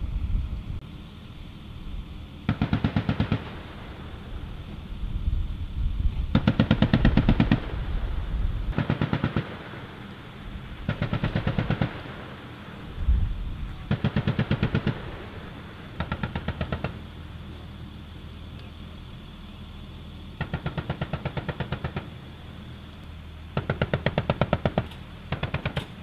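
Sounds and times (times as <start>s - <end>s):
machine gun bursts: 2.5s - 3.5s, 8.7s - 9.6s, 10.9s - 12.0s.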